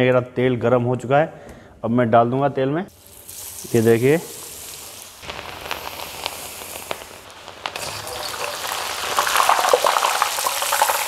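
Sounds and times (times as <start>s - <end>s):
okra sizzling in hot oil: 2.9s - 11.0s.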